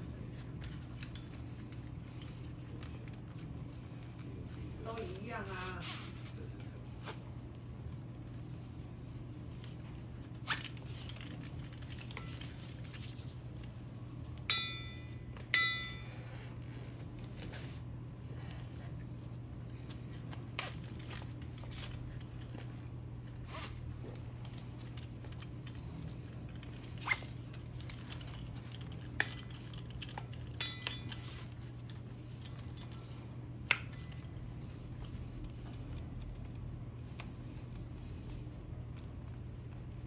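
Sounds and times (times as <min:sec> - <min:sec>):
metal clips clinking: 0:29.2 - 0:31.4.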